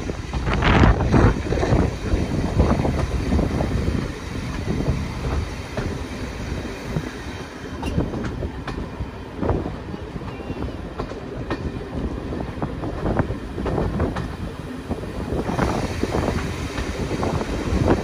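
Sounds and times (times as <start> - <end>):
train rumbling along track: 0.0 - 18.0.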